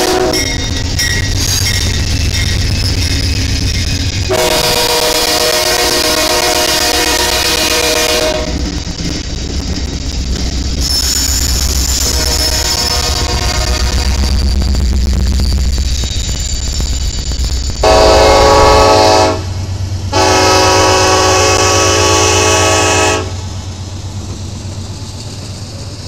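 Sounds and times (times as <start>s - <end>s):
locomotive air horn: 0.0s - 0.5s, 4.3s - 8.6s, 12.1s - 14.2s, 17.8s - 23.4s
freight train rumbling: 0.0s - 26.0s.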